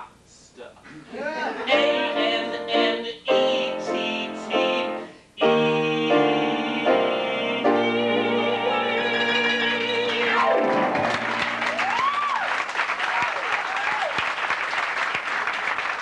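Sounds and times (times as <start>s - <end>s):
grand piano chords: 1.7s - 12.0s.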